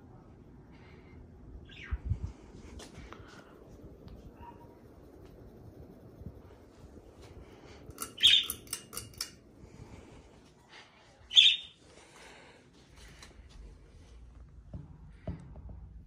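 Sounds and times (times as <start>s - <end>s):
budgerigar sharp chirps: 8.0s - 8.6s.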